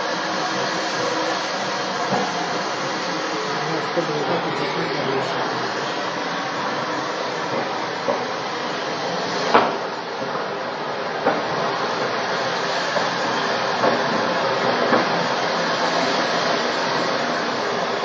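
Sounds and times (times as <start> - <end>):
gas fire rushing: 0.0 - 18.0.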